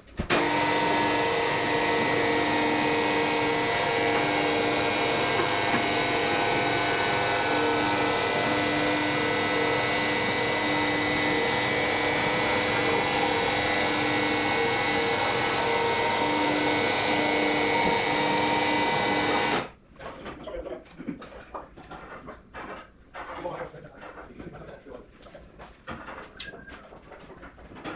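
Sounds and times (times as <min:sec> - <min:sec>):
electric lifting jacks droning: 0:00.2 - 0:19.7
faint knocks and clatter: 0:19.9 - 0:27.9.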